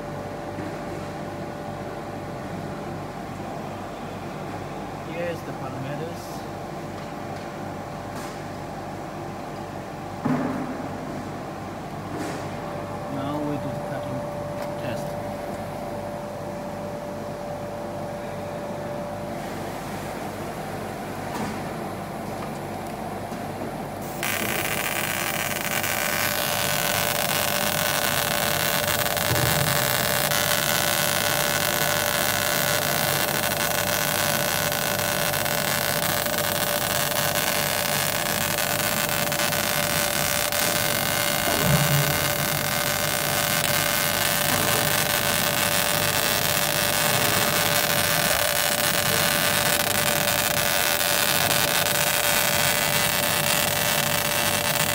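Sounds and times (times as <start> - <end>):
laser cutter machine hum: 10.8 - 54.9.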